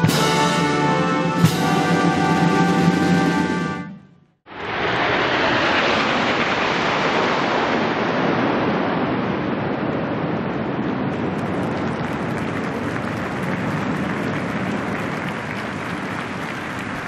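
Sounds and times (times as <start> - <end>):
jets roaring past: 4.5 - 17.0.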